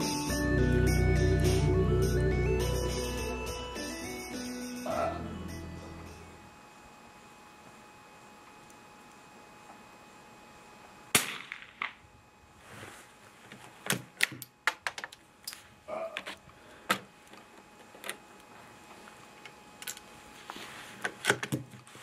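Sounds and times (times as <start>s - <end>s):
rifle shot: 11.1s - 12.0s.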